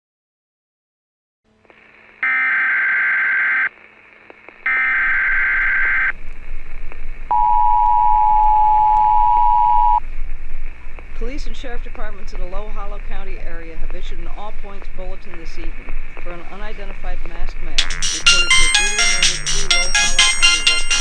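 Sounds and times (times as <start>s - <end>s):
screeching data bursts: 4.7s - 6.1s
two-note attention tone: 7.3s - 10.0s.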